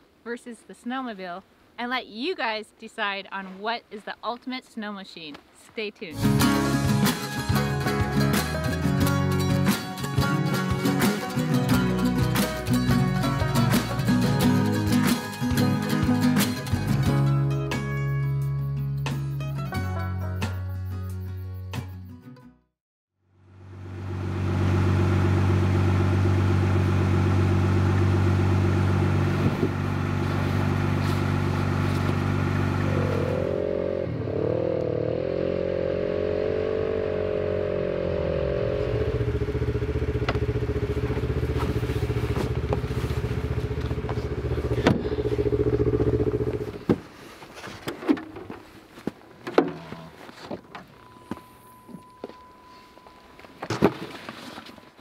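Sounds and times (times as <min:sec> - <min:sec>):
engine idling: 0:23.4 - 0:33.8, 0:37.7 - 0:46.8
engine revving: 0:23.9 - 0:46.8.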